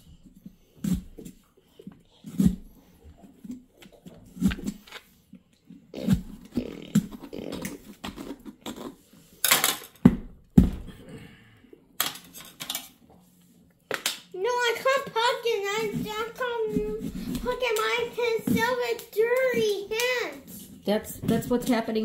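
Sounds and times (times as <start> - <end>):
plastic scoop scraping inside pumpkin: 14.4 - 20.8.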